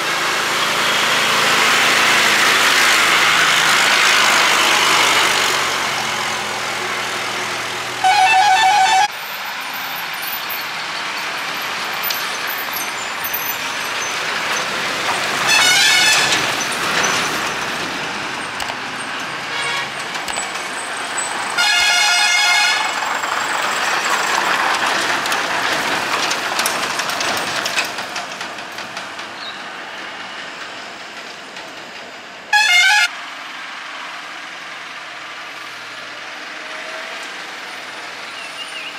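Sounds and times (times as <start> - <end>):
heavy vehicle engine and tyre noise: 0.0 - 38.9
multi-tone truck horn blasts: 8.0 - 9.1, 15.4 - 16.4, 19.5 - 20.0, 21.6 - 23.0, 32.5 - 33.2.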